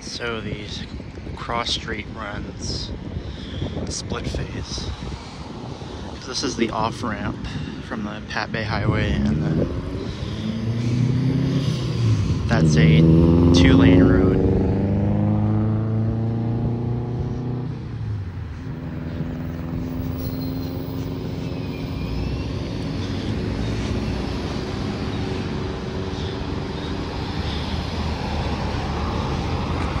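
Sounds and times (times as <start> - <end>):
vehicle engines running: 0.0 - 30.0.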